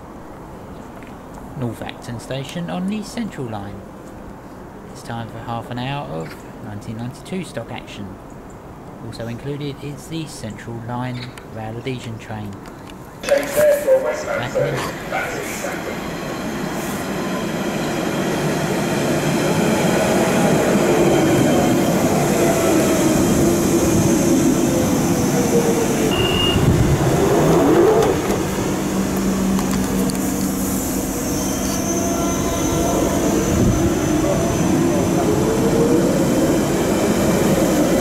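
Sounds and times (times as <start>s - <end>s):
steady train hum: 0.0s - 3.0s, 12.6s - 38.0s
train running into platform: 12.9s - 38.0s.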